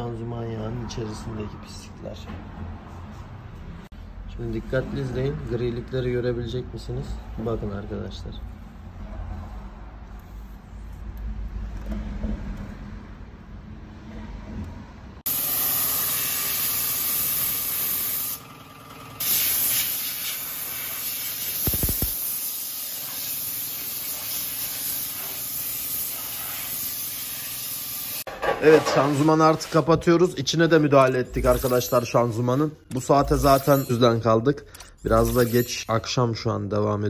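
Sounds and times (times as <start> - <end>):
spray cleaner hissing on metal: 15.3 - 18.4, 19.2 - 28.3.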